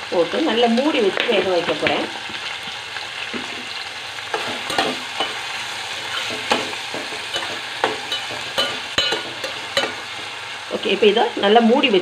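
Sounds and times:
vegetables sizzling in oil: 0:00.0 - 0:12.0
metal spatula scraping pot: 0:03.4 - 0:10.3.

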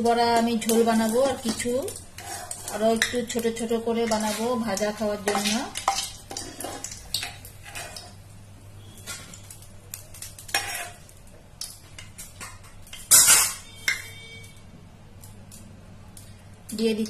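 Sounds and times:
oil sizzling: 0:00.0 - 0:17.0
ladle scraping a metal pan: 0:02.2 - 0:03.2, 0:05.3 - 0:08.2, 0:10.5 - 0:11.0.

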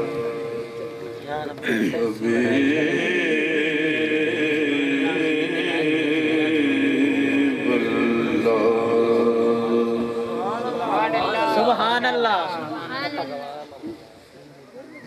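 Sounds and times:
man singing long held notes: 0:00.0 - 0:11.3.

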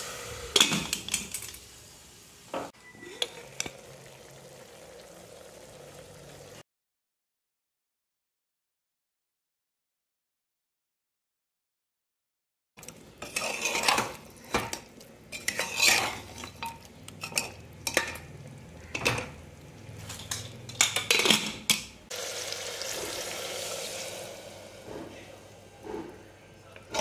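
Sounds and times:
water pouring into pot: 0:03.0 - 0:06.6, 0:22.1 - 0:25.8
ladle scraping and clanking in pot: 0:13.2 - 0:18.3, 0:20.0 - 0:21.9.

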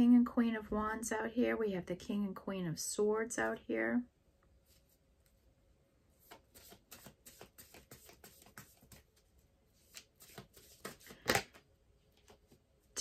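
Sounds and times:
cards being shuffled: 0:06.2 - 0:12.6.

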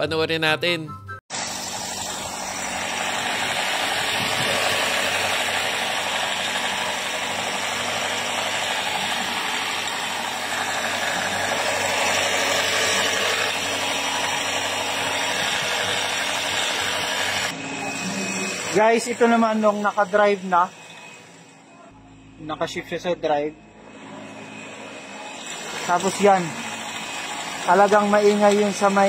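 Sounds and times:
car engine running: 0:01.4 - 0:21.2.

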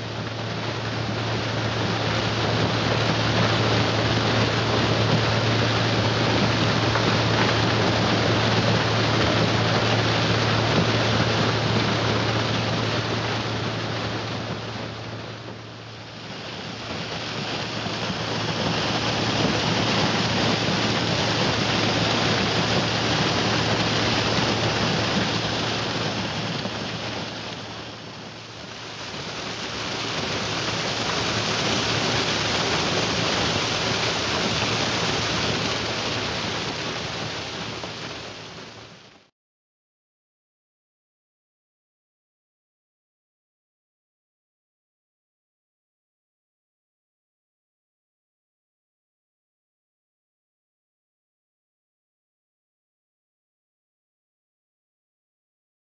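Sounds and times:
low machine hum: 0:00.0 - 0:38.9
crackle of dry stalks: 0:00.0 - 0:39.0.

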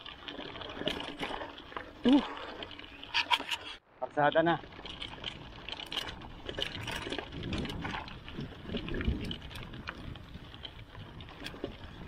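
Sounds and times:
bike ticks and rattles: 0:00.0 - 0:12.0.

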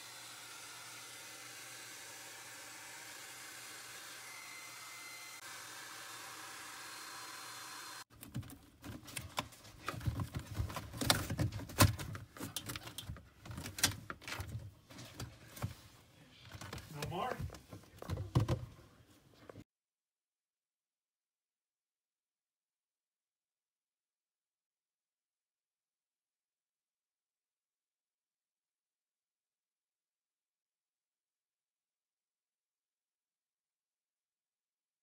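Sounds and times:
handling noise clicks and knocks: 0:08.1 - 0:15.7.

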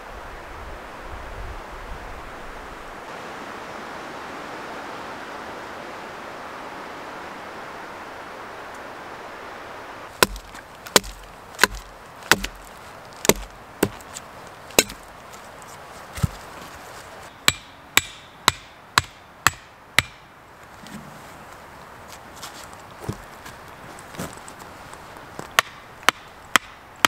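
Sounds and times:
hatchet striking wood: 0:10.2 - 0:14.2, 0:14.8 - 0:15.0, 0:17.4 - 0:20.3, 0:25.6 - 0:26.8.

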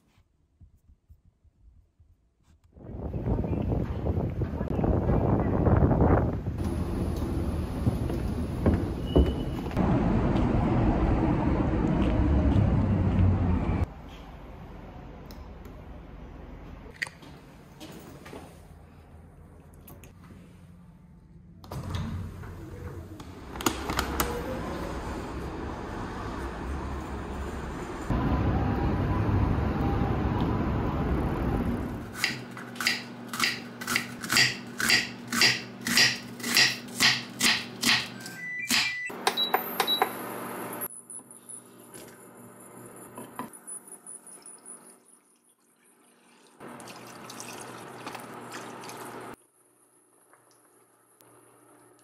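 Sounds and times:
knife chopping onion on board: 0:32.2 - 0:38.1
water pouring into pan: 0:45.5 - 0:49.1.

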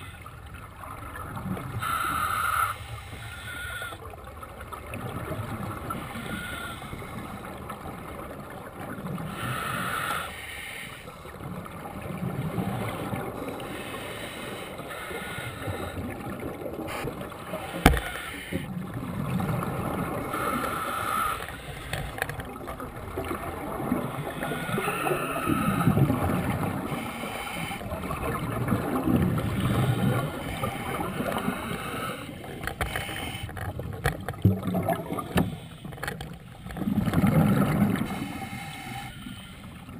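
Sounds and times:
gurgling bubble exhalations: 0:34.4 - 0:35.4.

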